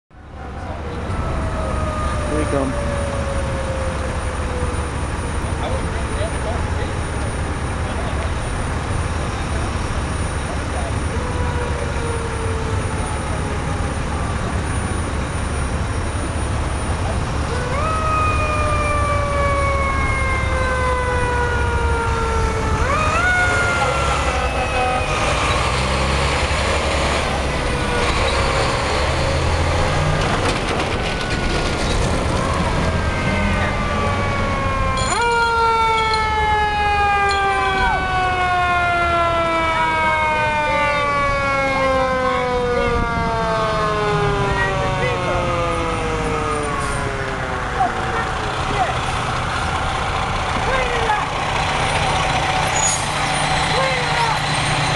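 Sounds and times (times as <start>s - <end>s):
fire engine siren wailing: 0.1s - 54.9s
truck engine rumble: 0.1s - 54.9s.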